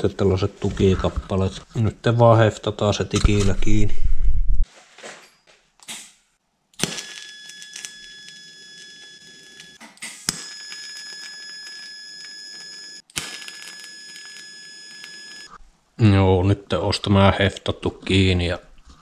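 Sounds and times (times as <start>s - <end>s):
welding arc crackling and whining: 6.8s - 15.6s.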